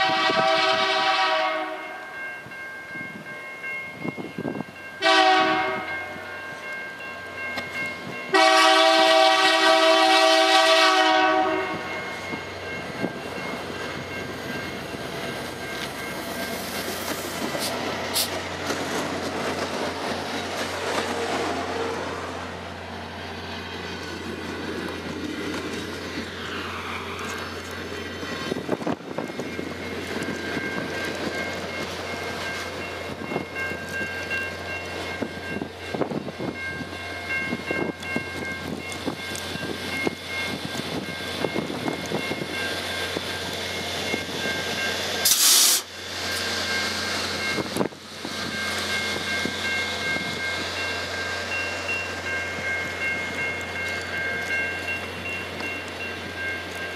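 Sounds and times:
train cars rumbling past: 0.0s - 56.9s
wheels clacking over rail joints: 12.8s - 36.2s.

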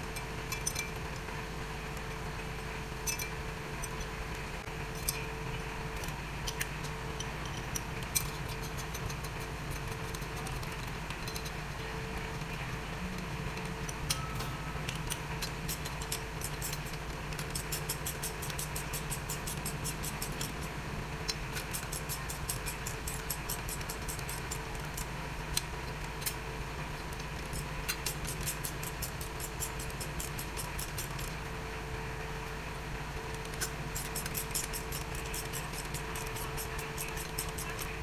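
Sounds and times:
background hum: 0.0s - 38.0s
socket ratchet clicking: 14.9s - 20.6s, 21.3s - 26.4s, 27.5s - 31.3s, 33.4s - 38.0s.

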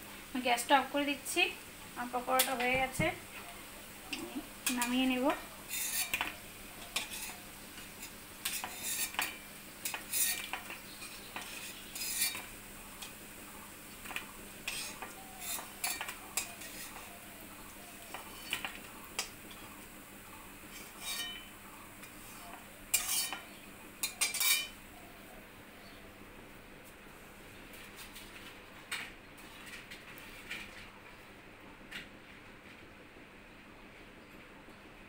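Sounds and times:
oil sizzling faintly: 0.0s - 33.0s
metal spatula scraping wok: 4.6s - 6.3s, 6.9s - 13.2s, 14.0s - 17.2s, 20.7s - 24.8s.

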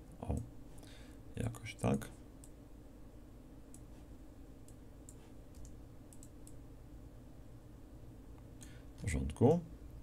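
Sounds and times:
low steady hum: 0.0s - 10.0s
computer mouse clicks: 4.6s - 6.6s.

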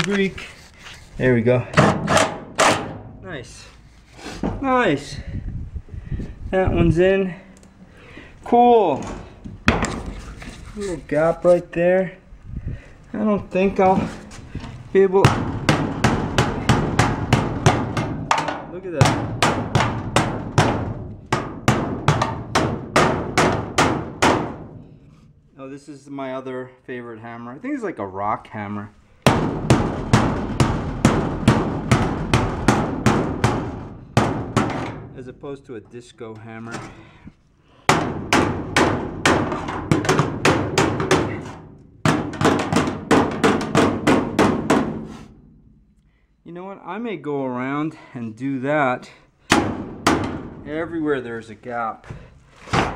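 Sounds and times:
hammer striking metal panel: 1.8s - 3.2s, 15.2s - 24.8s, 29.3s - 35.2s, 37.9s - 45.1s, 49.5s - 50.6s.

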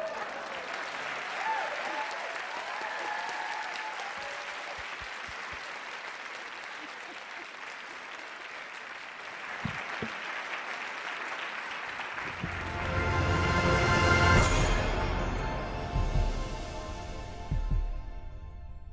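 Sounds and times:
audience applauding: 0.0s - 14.2s
dull low thumps: 17.4s - 18.4s.

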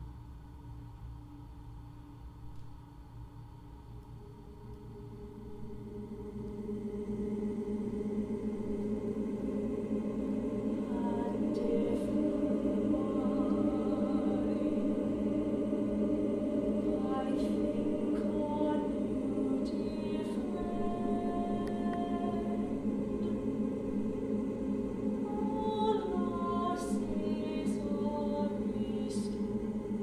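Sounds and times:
woman singing: 10.6s - 23.6s, 25.2s - 29.8s.

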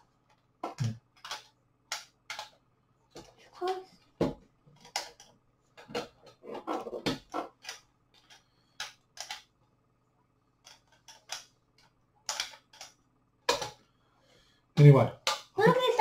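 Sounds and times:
plastic toy pieces clicking: 1.2s - 2.6s, 10.6s - 11.5s, 12.3s - 13.7s.

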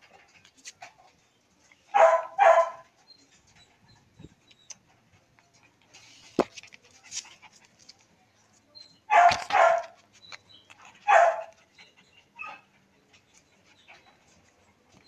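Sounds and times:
puppy barking: 1.9s - 2.9s, 9.1s - 10.0s, 11.0s - 11.6s.

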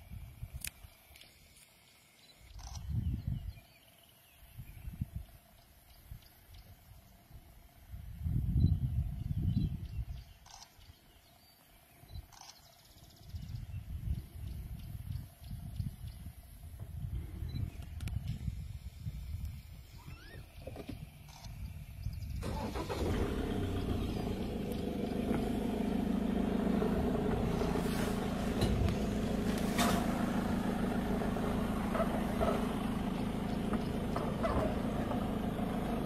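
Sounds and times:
vehicle engine starting and running: 20.7s - 36.0s.

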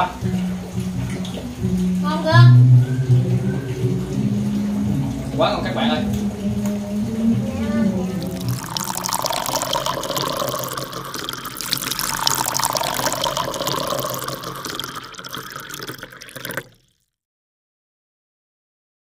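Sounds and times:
splashing rushing water: 3.0s - 16.8s.

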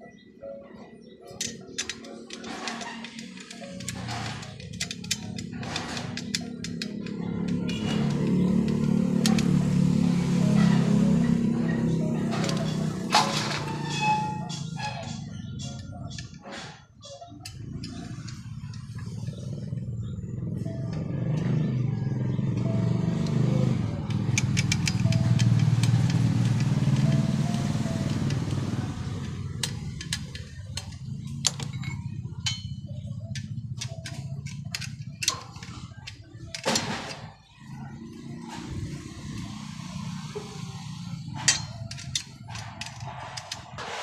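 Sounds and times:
metal parts clicking and tapping: 1.3s - 19.9s, 23.2s - 44.0s
vehicle passing: 6.2s - 13.7s, 18.7s - 30.6s.

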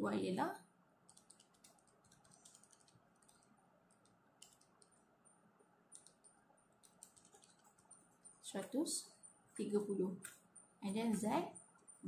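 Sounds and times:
calculator keys clicking: 1.1s - 5.0s, 5.9s - 8.9s.

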